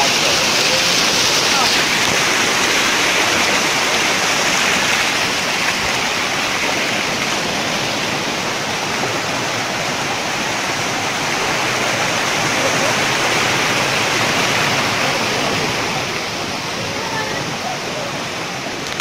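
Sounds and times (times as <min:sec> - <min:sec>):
stream water cascading over rocks: 0:00.0 - 0:19.0.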